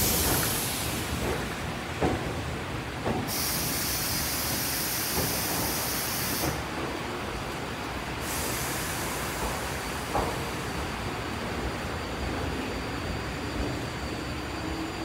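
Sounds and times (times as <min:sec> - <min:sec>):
air brakes hissing: 0:00.0 - 0:01.2, 0:03.3 - 0:06.6, 0:08.2 - 0:10.7
train wheels knocking: 0:00.0 - 0:07.0
electric train low rumble: 0:00.0 - 0:15.0.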